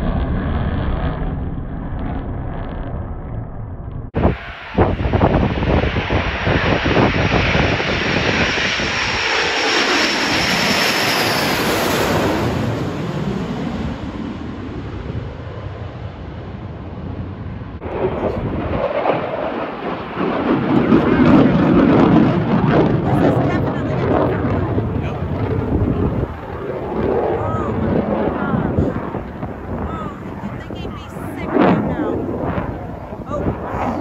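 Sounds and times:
jets roaring overhead: 0.0s - 34.0s.

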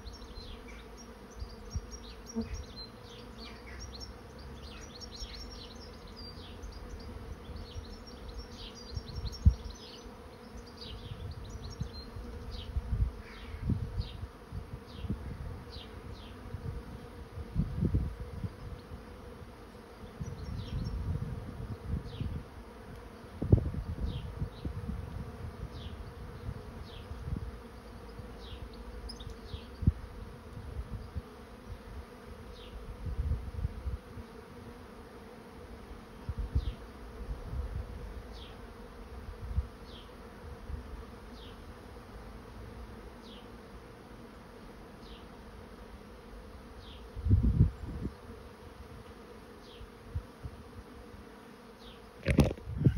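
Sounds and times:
bees humming: 0.0s - 52.9s
wind rumbling on microphone: 11.0s - 19.0s, 20.2s - 22.6s, 23.3s - 27.6s, 29.3s - 31.9s, 32.8s - 34.2s, 36.2s - 38.2s, 47.1s - 48.2s, 52.2s - 52.9s.

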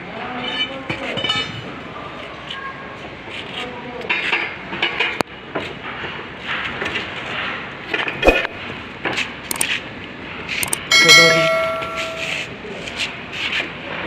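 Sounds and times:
metal bar clinking and clanking: 10.6s - 12.4s
sharp click: 10.6s - 12.4s.

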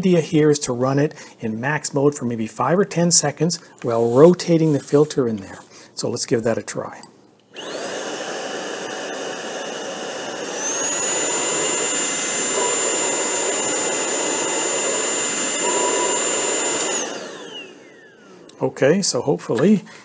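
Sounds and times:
handheld vacuum motor whine: 7.5s - 18.6s.

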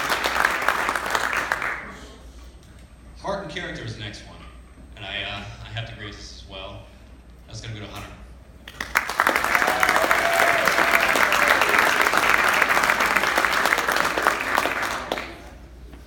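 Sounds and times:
audience clapping: 0.0s - 2.0s, 8.6s - 15.8s.

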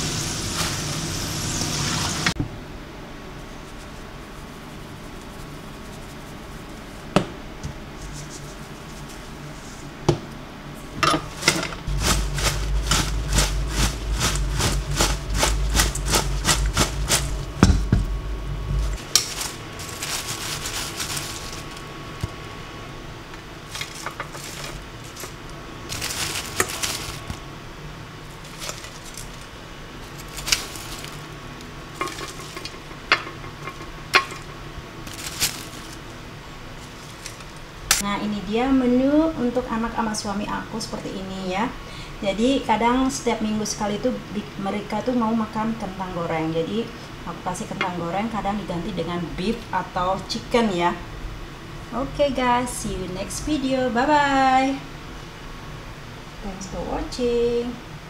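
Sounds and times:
fries rattling in metal colander: 11.1s - 17.9s, 18.8s - 21.9s, 23.6s - 27.4s, 28.2s - 36.1s, 36.8s - 38.0s.

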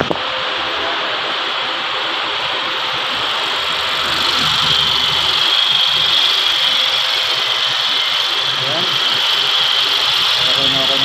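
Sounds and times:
car engine idling: 2.5s - 11.0s.

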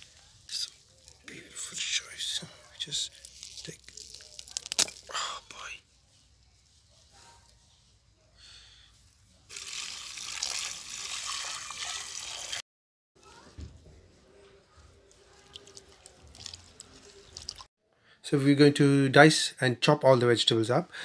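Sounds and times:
tap water pouring into bucket: 9.5s - 12.6s.

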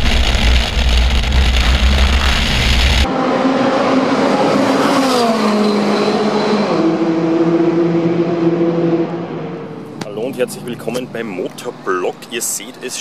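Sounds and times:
sports car passing at speed: 3.0s - 11.9s.

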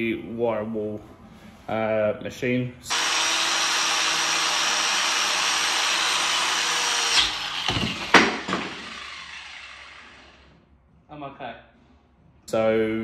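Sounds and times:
wire brush grinder on steel: 2.9s - 10.4s
grinder wheel knocking: 4.5s - 10.2s.

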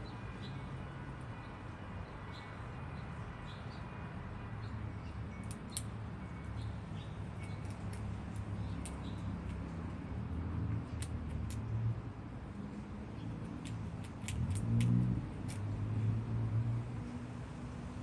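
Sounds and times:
squirrel teeth scraping nutshell: 7.4s - 9.7s, 10.9s - 11.7s, 13.2s - 15.8s
nutshell cracking: 13.4s - 15.7s.

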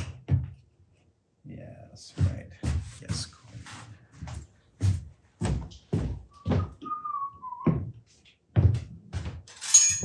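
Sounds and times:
person whistling: 6.3s - 7.8s.

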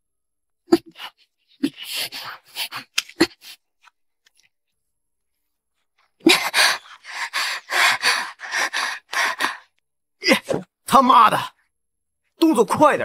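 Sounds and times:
person breathing hard: 0.9s - 3.6s, 6.2s - 9.8s.

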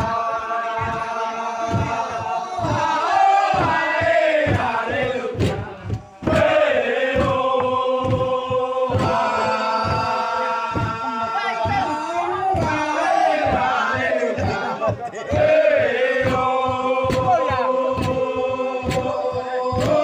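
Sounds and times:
men chanting together: 0.0s - 20.0s
low thud: 1.7s - 12.8s.

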